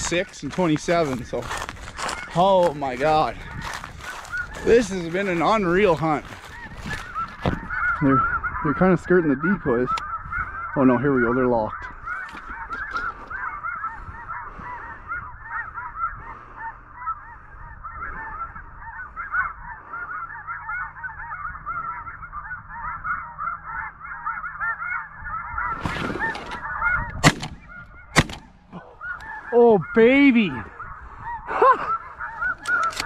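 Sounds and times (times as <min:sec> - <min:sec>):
geese honking: 0:00.0 - 0:33.0
loud shotgun shot: 0:27.2 - 0:27.6, 0:28.2 - 0:28.6.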